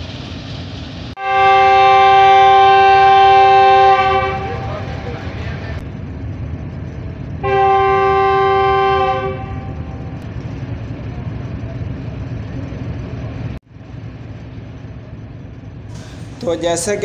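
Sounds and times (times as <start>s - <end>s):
train rumbling: 0.0s - 17.0s
locomotive horn blast: 1.2s - 5.2s, 7.4s - 10.2s.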